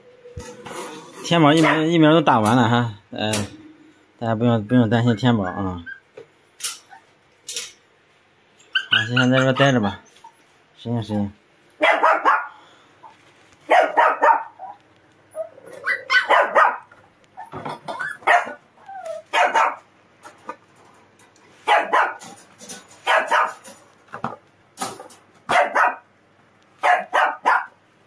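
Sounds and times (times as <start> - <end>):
dog barking: 1.6 - 1.9, 11.8 - 12.6, 13.7 - 14.8, 15.8 - 16.9, 18.2 - 18.6, 19.3 - 19.9, 21.6 - 22.2, 23.0 - 23.6, 25.5 - 26.1, 26.8 - 27.8.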